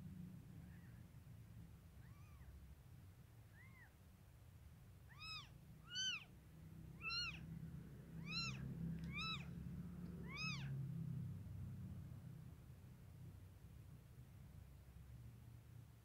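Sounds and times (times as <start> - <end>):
kittens mewing: 2.0 - 2.5, 5.1 - 6.3, 6.9 - 7.4, 8.2 - 9.6, 10.2 - 10.8.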